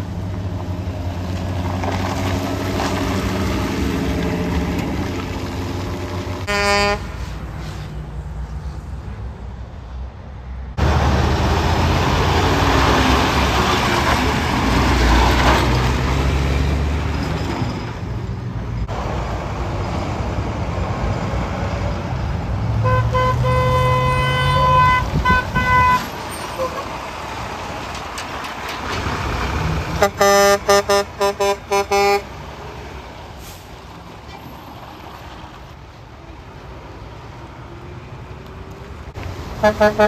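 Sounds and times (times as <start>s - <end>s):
truck horn blasts: 6.5s - 7.1s, 22.8s - 26.9s, 30.0s - 32.3s, 39.6s - 40.0s.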